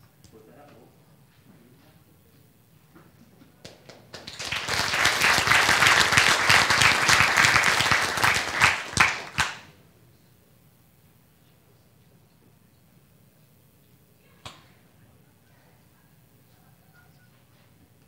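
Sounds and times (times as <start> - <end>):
audience applauding: 4.1 - 9.7.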